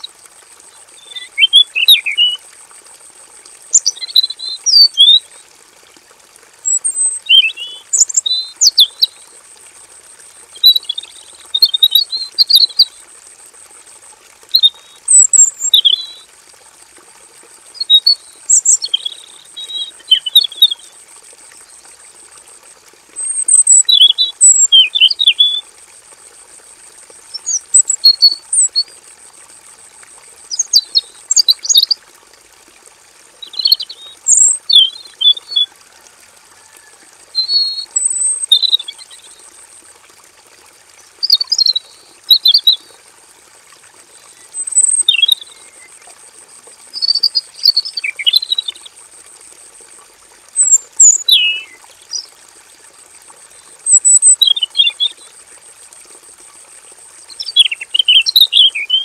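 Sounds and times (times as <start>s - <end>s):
bird chirping song: 0.7s - 2.4s, 3.7s - 5.4s, 6.7s - 9.2s, 10.6s - 12.9s, 14.5s - 16.2s, 17.8s - 20.8s, 33.4s - 35.7s, 37.4s - 39.3s, 47.0s - 48.9s, 50.6s - 52.3s, 57.3s - 59.0s.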